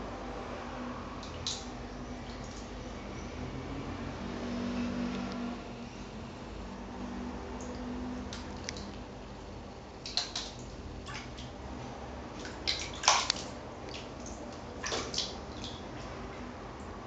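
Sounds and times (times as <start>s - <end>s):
water splashing in a basin: 1.2s - 2.8s, 7.5s - 9.1s, 10.0s - 17.0s.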